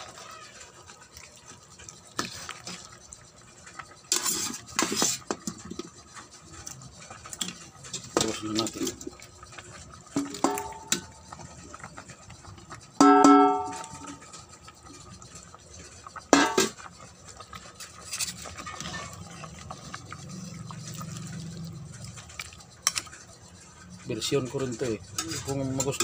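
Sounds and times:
metal cookware clanking: 4.0s - 5.8s, 6.9s - 11.7s, 13.0s - 14.5s, 15.8s - 16.9s, 17.6s - 26.0s
loud ringing clang: 13.0s - 14.0s.

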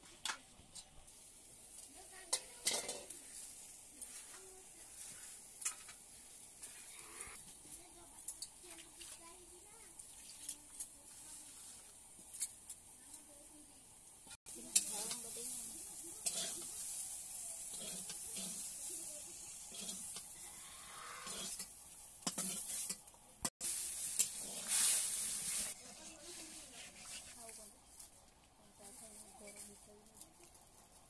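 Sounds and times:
vegetables sizzling in a pan: 0.0s - 27.7s
metal spoon scraping a pan: 2.2s - 6.0s, 14.6s - 23.1s, 24.0s - 27.4s.

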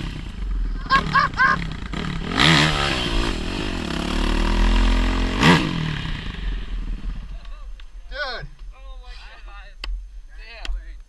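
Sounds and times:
dirt bike engine revving: 0.0s - 7.4s.

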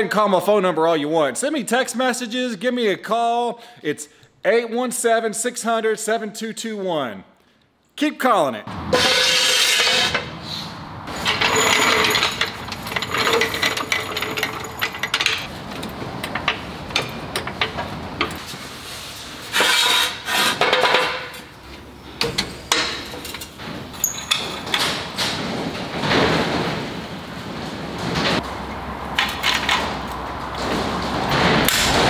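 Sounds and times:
floor jack clanking: 11.1s - 18.4s, 22.2s - 32.0s
hand tools knocking on metal: 11.3s - 18.4s.

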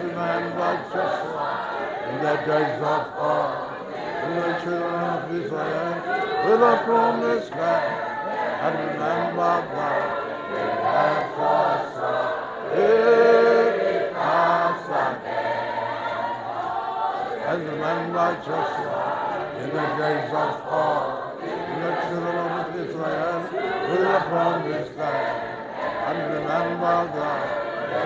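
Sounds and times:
mixed choir singing: 0.0s - 28.0s.

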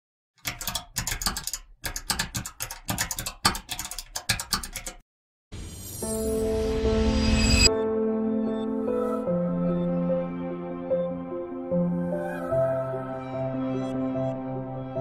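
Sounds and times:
fast typing on laptop keyboard: 0.4s - 5.0s
music: 5.5s - 15.0s.

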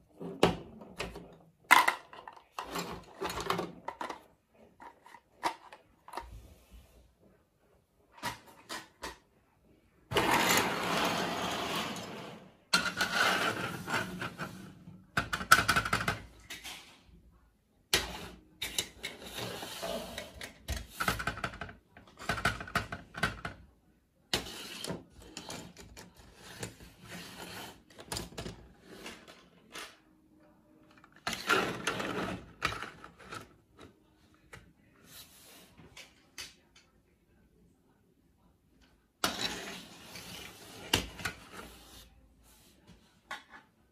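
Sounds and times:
plastic toy pieces clattering: 1.0s - 6.3s.

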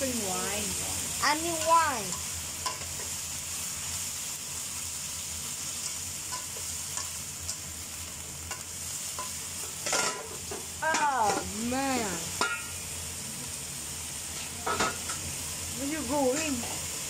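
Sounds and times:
vegetables sizzling in oil: 0.0s - 17.0s
spatula clicking against pan: 5.8s - 7.6s.

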